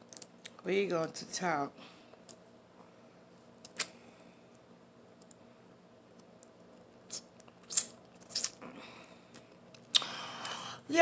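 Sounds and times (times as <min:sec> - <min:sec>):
faint room hum: 0:00.0 - 0:11.0
wet mouth clicks and lip smacks: 0:03.6 - 0:04.0, 0:06.2 - 0:08.6.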